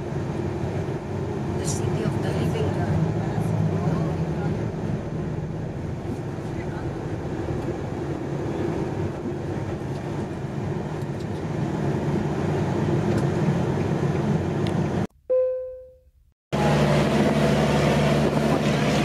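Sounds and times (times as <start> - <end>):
boat engine: 0.0 - 15.0, 16.6 - 19.0
vehicle engine and road noise: 0.0 - 15.1, 16.6 - 19.0
ringing ding: 15.3 - 16.1.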